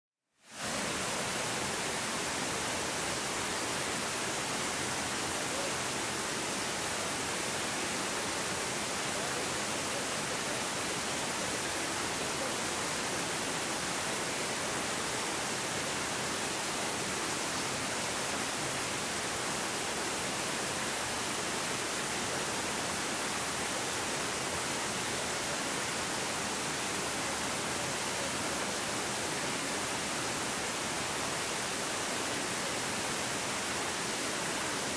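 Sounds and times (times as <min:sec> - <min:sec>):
rocky stream rushing: 0:00.5 - 0:34.9.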